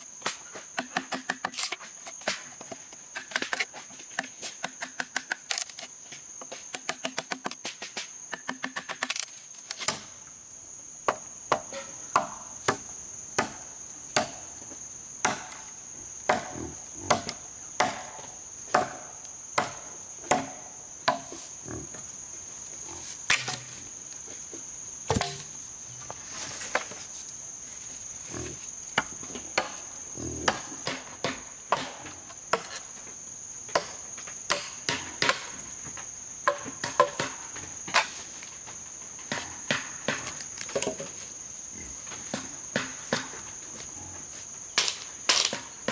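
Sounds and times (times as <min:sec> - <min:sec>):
insects calling: 0:00.0 - 0:45.9
machete chopping wood: 0:00.2 - 0:02.5, 0:13.4 - 0:13.6, 0:14.2 - 0:14.4, 0:15.2 - 0:15.7, 0:16.3 - 0:21.4, 0:25.1 - 0:25.6.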